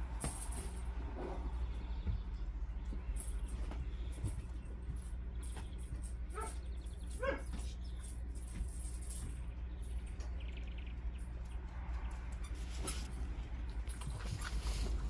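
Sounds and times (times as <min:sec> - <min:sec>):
steady low hum: 0:00.0 - 0:15.0
puppy yipping: 0:07.2 - 0:07.6.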